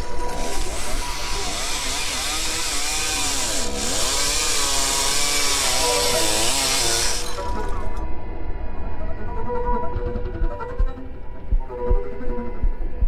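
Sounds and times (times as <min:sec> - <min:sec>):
chainsaw cutting wood: 0:00.0 - 0:07.8.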